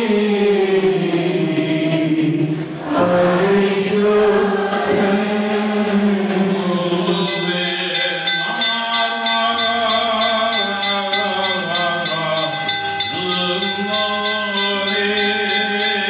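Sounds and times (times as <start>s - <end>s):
men chanting a hymn: 0.0s - 16.0s
small bells jingling: 7.2s - 16.0s.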